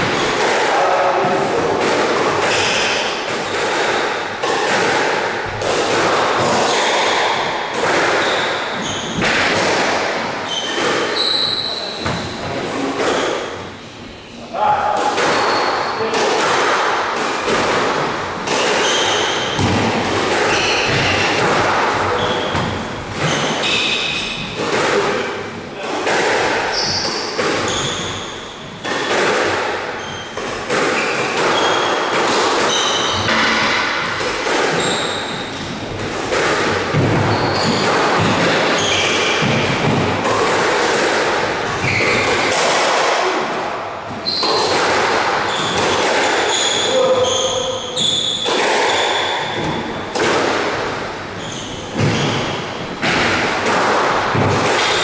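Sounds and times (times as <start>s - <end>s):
rackets striking ball: 0.0s - 13.8s, 14.8s - 55.0s
sneakers squeaking: 6.4s - 9.5s, 10.3s - 14.4s, 15.2s - 16.1s, 18.5s - 24.7s, 26.6s - 29.1s, 30.0s - 33.4s, 34.6s - 36.0s, 36.9s - 39.9s, 41.7s - 42.6s, 44.1s - 53.0s.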